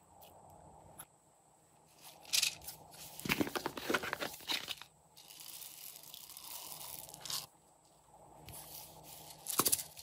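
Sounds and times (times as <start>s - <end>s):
foam beads rattling in bottle: 4.3s - 7.5s
beads pouring out: 5.2s - 7.5s.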